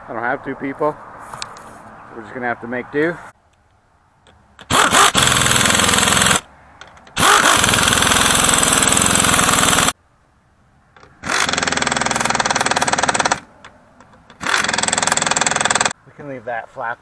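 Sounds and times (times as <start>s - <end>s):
impact driver hammering: 4.6s - 6.4s, 14.4s - 15.9s.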